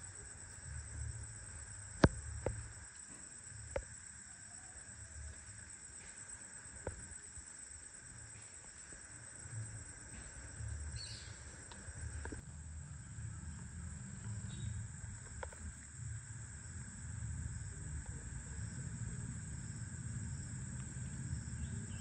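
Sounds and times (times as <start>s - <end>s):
insect chorus buzzing: 0.0s - 22.0s
low uneven rumble: 4.9s - 22.0s.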